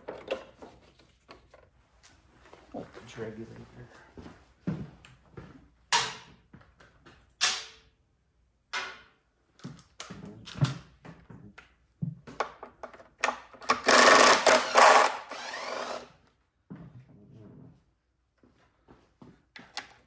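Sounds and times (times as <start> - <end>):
power driver whirring: 13.7 - 16.1.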